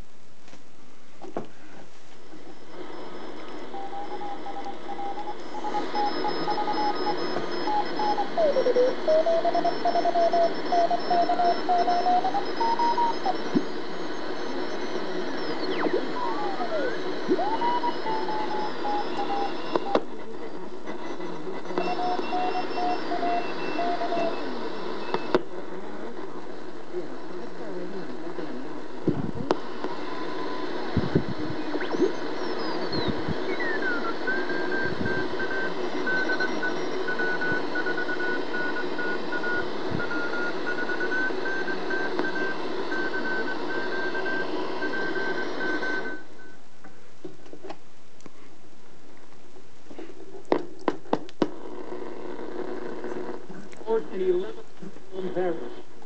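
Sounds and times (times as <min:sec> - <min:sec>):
radio static hiss: 0:00.0 - 0:56.0
heterodyne whistles: 0:02.9 - 0:25.3, 0:31.6 - 0:46.6.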